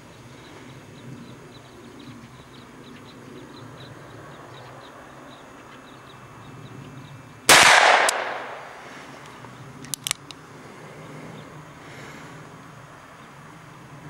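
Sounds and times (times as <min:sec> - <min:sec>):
revolver shot with echo: 0:07.5 - 0:08.8
light clicks: 0:09.2 - 0:10.4.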